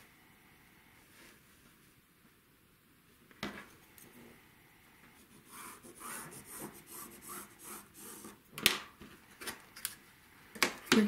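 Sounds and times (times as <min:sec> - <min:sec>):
pencil scratching on fabric: 0:05.2 - 0:08.4.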